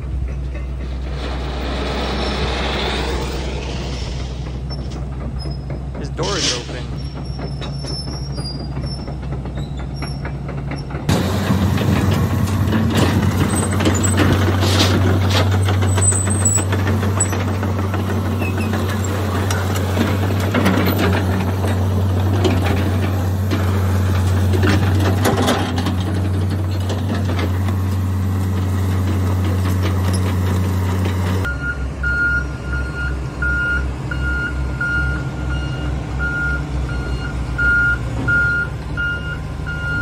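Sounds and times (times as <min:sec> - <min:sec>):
knocks and clanks: 0:00.0 - 0:31.5
excavator diesel engine running: 0:00.0 - 0:40.0.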